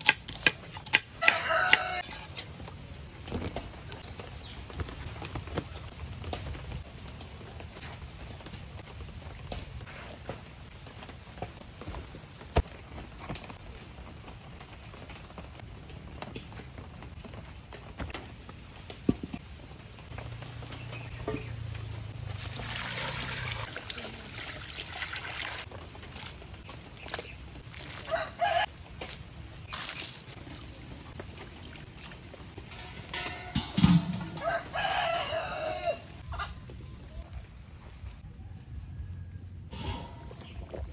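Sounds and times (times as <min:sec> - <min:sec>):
rooster crowing: 0:01.2 - 0:02.2, 0:28.0 - 0:28.7, 0:34.2 - 0:36.5
water poured into metal wok: 0:22.3 - 0:25.6.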